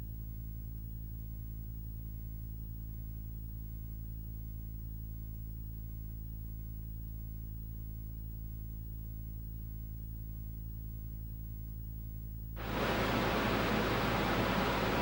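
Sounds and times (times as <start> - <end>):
faint hiss: 12.6 - 15.0
steady low hum: 12.6 - 15.0.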